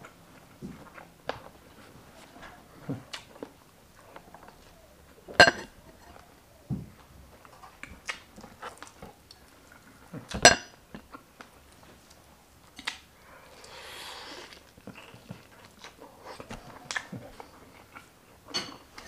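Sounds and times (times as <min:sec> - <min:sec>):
dishware clinking: 0:05.4 - 0:05.8, 0:10.5 - 0:10.7.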